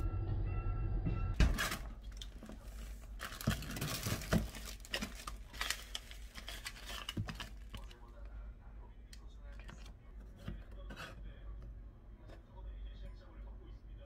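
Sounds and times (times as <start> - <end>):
plastic bags crinkling: 1.4 - 8.0.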